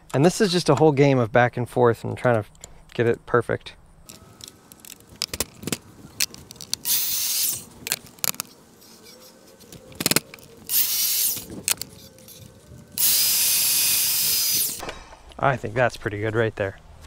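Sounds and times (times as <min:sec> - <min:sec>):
power drill running: 0:06.8 - 0:07.7, 0:10.7 - 0:11.5, 0:13.0 - 0:14.8
taps and clicks of tools: 0:09.6 - 0:10.6.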